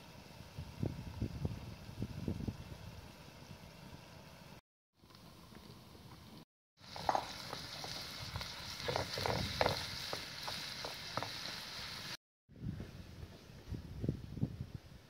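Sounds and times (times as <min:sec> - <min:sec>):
meat sizzling in oil: 0:06.8 - 0:12.2
wooden spatula scraping a pan: 0:06.9 - 0:12.2.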